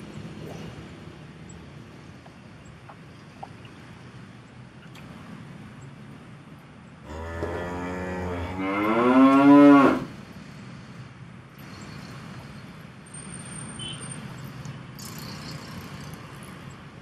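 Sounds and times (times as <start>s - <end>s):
cow mooing: 7.1s - 10.1s.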